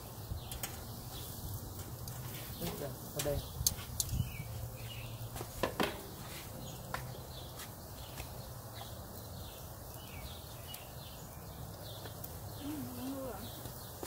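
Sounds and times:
faint bird chirps: 8.7 - 14.0.

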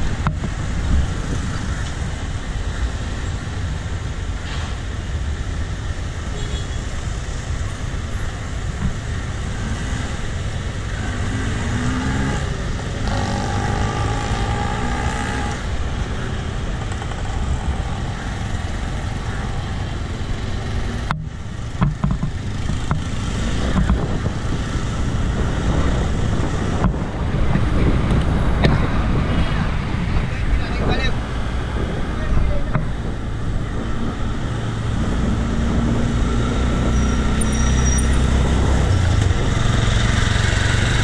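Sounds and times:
wind rumble on microphone: 0.0 - 6.2, 7.1 - 41.0
passing traffic: 0.0 - 41.0
vehicle engine revving: 9.4 - 15.7.

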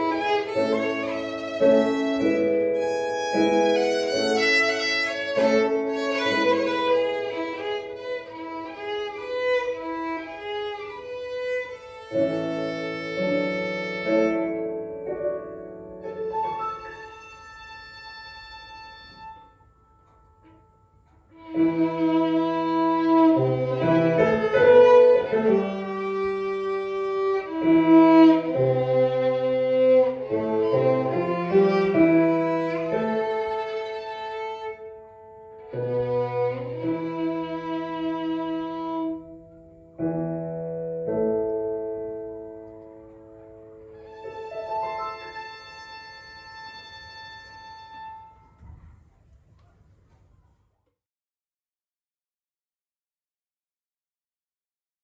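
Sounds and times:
solo violin: 0.0 - 15.1, 16.0 - 19.7, 21.0 - 39.8, 43.8 - 48.8
piano accompaniment: 0.0 - 49.2.

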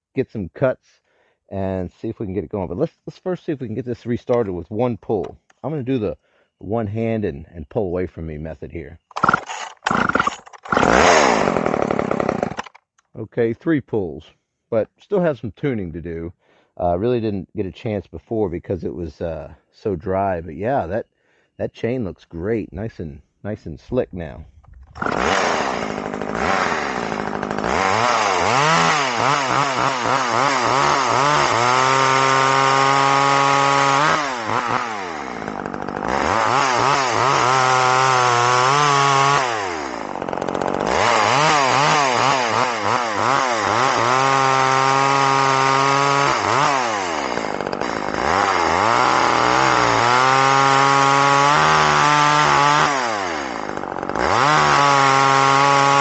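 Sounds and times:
chainsaw revving and cutting wood: 9.1 - 12.8, 24.8 - 56.0.

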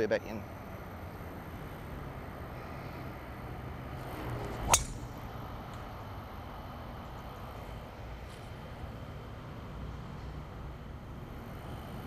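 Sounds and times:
golf club swoosh: 4.0 - 5.4
golf club striking ball: 4.3 - 5.4.

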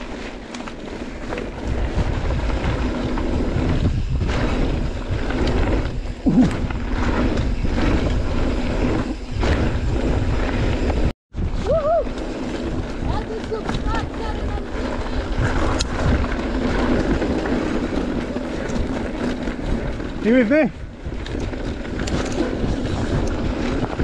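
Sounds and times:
tyre noise: 0.0 - 24.0
wind buffeting microphone: 1.2 - 24.0
bike knocks and rattles: 12.2 - 24.0.

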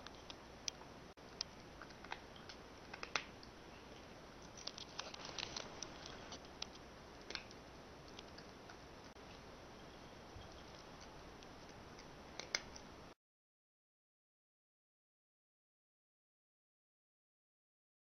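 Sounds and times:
cat chewing dry food: 0.0 - 12.9.

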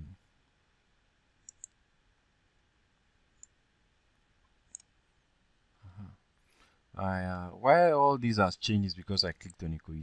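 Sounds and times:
computer mouse button clicks: 1.5 - 1.7.

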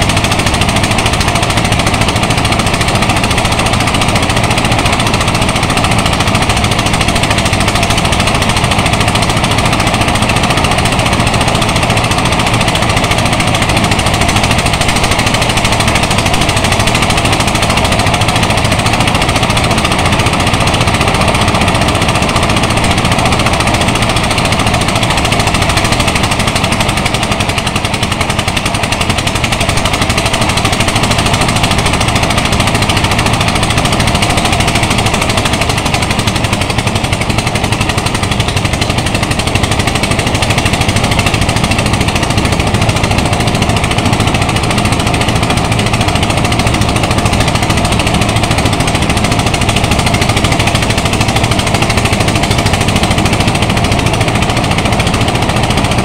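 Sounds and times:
rice thresher engine pounding: 0.0 - 56.0.

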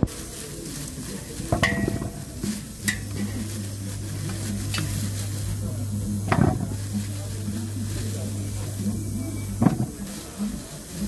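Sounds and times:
steady low hum: 0.0 - 11.0
bananas knocking into metal pot: 1.4 - 10.1.

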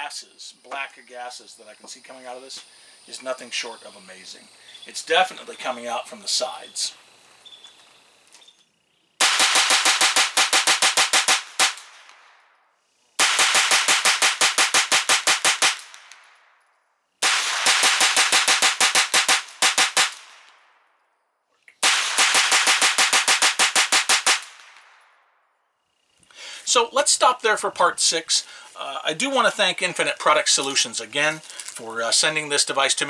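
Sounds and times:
pistol firing rapid shots: 9.2 - 12.3, 13.2 - 16.2, 17.2 - 20.4, 21.8 - 25.0.

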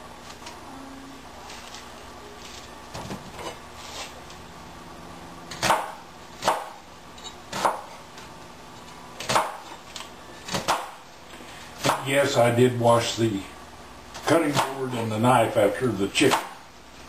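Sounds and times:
knife chopping on cutting board: 5.6 - 6.8, 7.5 - 7.9, 9.2 - 9.7, 11.8 - 12.0.

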